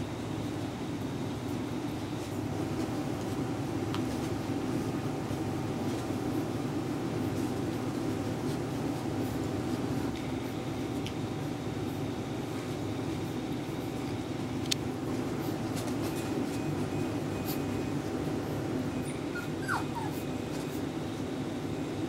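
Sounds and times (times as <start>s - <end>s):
low room hum: 0.0s - 22.0s
puppies scuffling clicks: 9.4s - 11.3s, 13.1s - 18.2s
puppy whimpering: 18.9s - 20.7s.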